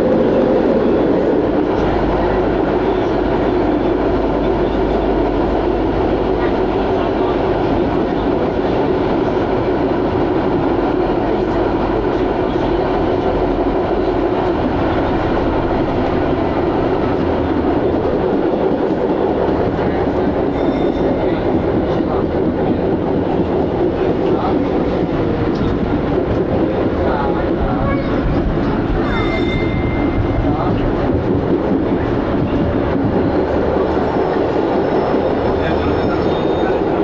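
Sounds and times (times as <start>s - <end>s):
tram wheels running on rails: 0.0s - 37.0s.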